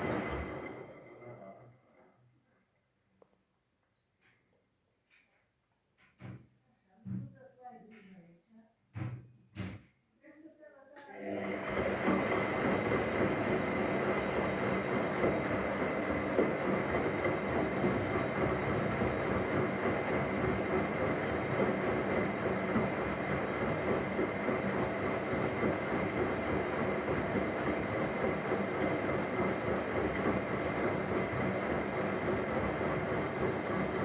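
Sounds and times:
washing machine drum turning: 11.7s - 34.0s.

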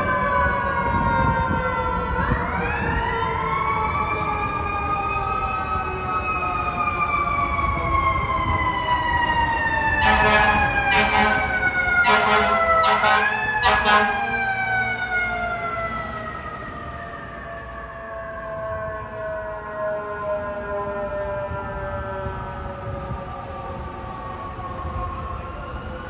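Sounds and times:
fire truck siren winding: 0.0s - 26.0s
loud air horn blasts: 10.0s - 14.3s.

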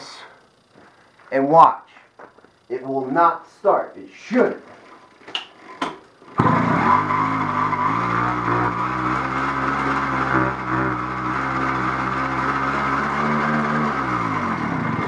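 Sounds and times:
engine turning over whirr: 6.2s - 15.0s.

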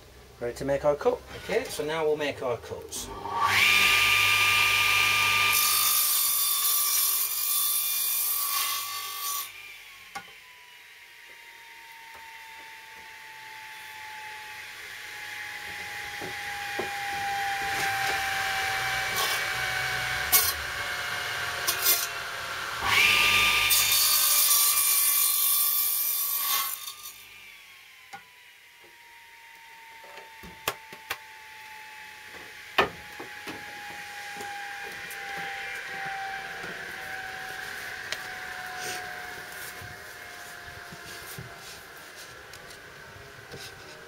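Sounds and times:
mitre saw running: 3.0s - 8.0s, 14.9s - 28.4s, 32.6s - 44.0s
saw blade cutting wood: 14.8s - 29.0s, 29.9s - 44.0s.

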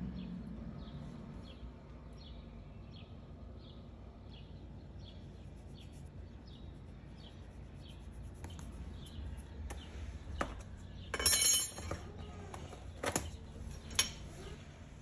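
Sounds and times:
low steady hum: 0.0s - 15.0s
small bird chirping: 0.8s - 11.2s.

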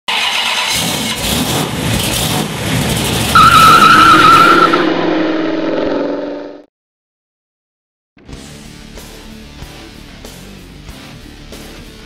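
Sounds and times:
tyre road noise: 0.1s - 6.6s
car engine: 0.1s - 6.7s
high-pitched tyre squeal: 3.2s - 6.6s.

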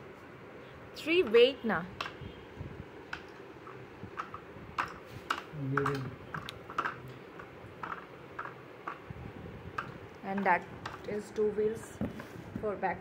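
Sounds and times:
plastic parts clicking and tapping: 3.1s - 9.1s, 9.7s - 11.2s.

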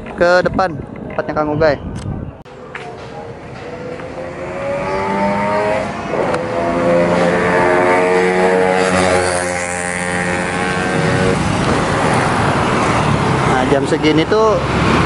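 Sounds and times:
road noise: 0.0s - 15.0s
motorcycles accelerating past: 3.1s - 15.0s.

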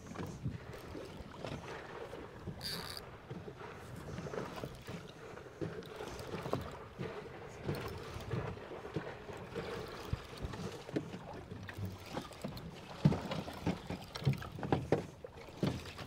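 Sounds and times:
water against boat hull: 0.0s - 16.0s.

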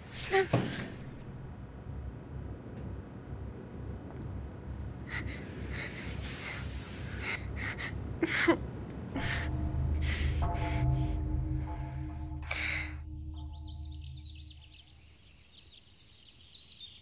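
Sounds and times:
low droning film score: 0.0s - 16.4s
woman gasping and breathing hard: 5.0s - 8.6s, 9.2s - 10.5s.

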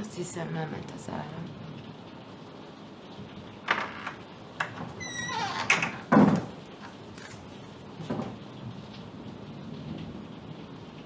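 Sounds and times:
door squeak: 3.7s - 6.5s
door clicks: 3.7s - 6.6s
heavy door thud: 3.7s - 6.6s.

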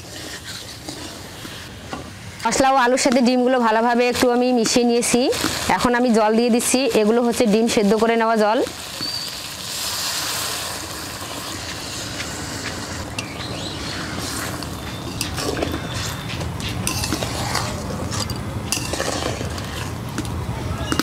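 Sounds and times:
water hissing in hot pan: 8.6s - 13.1s
metal spatula scraping pan: 14.3s - 20.0s.

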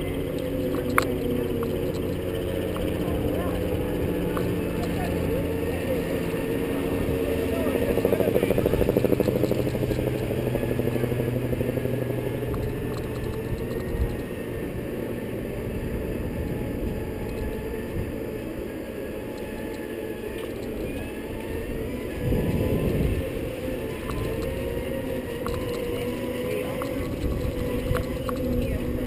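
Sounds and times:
faint motor whine: 0.0s - 29.0s
wind buffeting microphone: 0.0s - 29.0s.

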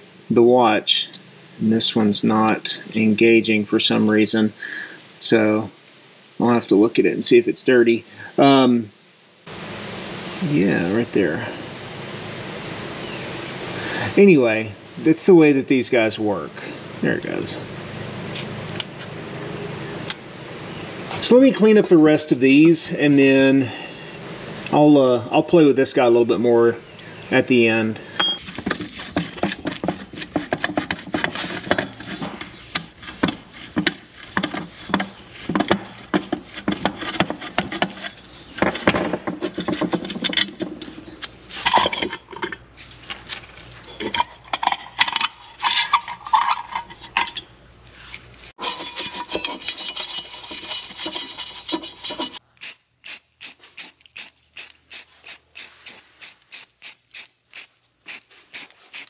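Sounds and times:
scrubbing by hand: 28.4s - 38.4s, 47.9s - 52.4s.

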